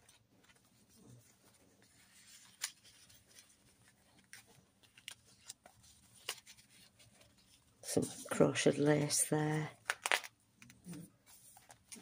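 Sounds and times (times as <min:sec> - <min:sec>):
paper taps and rustles: 0:02.2 - 0:07.4, 0:09.8 - 0:12.0.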